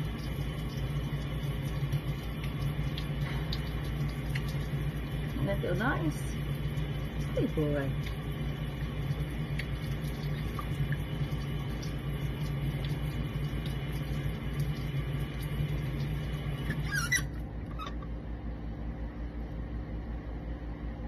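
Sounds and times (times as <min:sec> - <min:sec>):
water ticks in sink: 0:00.0 - 0:17.4
steady low hum: 0:00.0 - 0:21.0
baby monkey squeaking: 0:16.8 - 0:18.0.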